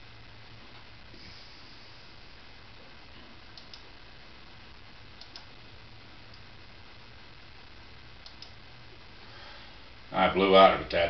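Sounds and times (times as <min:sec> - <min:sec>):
steady low hiss: 0:00.0 - 0:11.0
computer mouse clicks: 0:03.5 - 0:03.9, 0:05.2 - 0:05.5, 0:08.2 - 0:08.6.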